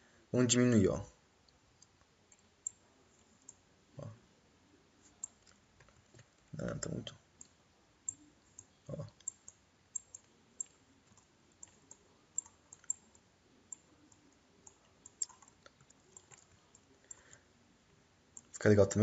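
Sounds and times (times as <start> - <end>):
computer mouse clicking: 1.8 - 3.6, 5.1 - 17.4, 18.4 - 18.6.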